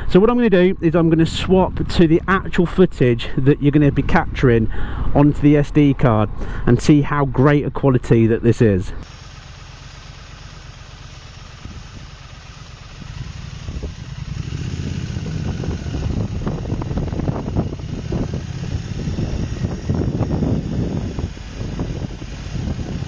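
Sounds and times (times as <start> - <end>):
motorcycle engine idling: 9.0 - 23.0
motorcycle pulling away: 9.0 - 23.0.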